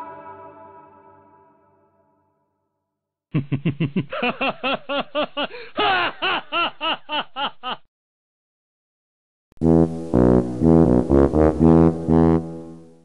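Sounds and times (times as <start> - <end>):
background music: 0.0 - 2.0, 9.7 - 13.0
cartoon baby laughing: 3.4 - 7.8.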